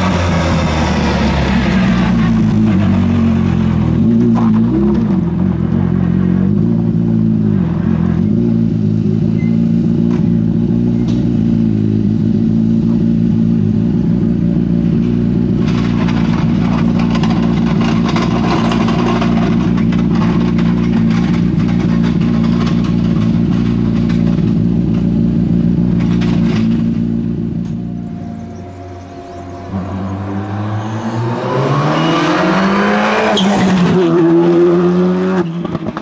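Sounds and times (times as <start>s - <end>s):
car engine idling: 10.2s - 31.1s.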